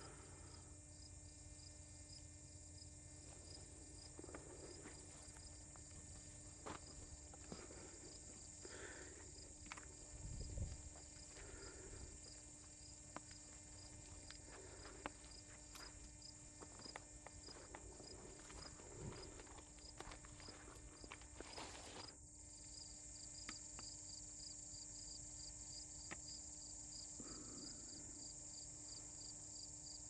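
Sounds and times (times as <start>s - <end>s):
steady low hum: 0.0s - 30.0s
footsteps on dirt and grass: 3.3s - 22.2s.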